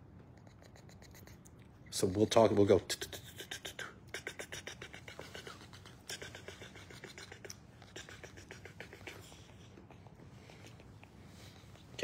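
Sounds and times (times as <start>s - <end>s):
monkeys clicking chatter: 0.4s - 1.5s, 2.9s - 11.2s.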